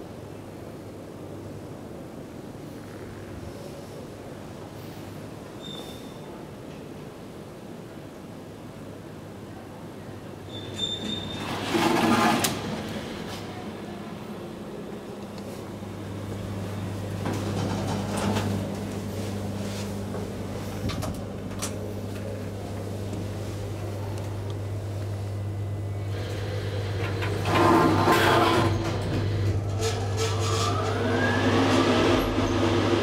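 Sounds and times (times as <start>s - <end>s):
elevator travelling hum: 0.0s - 33.0s
elevator doors sliding: 10.4s - 24.4s, 26.0s - 33.0s.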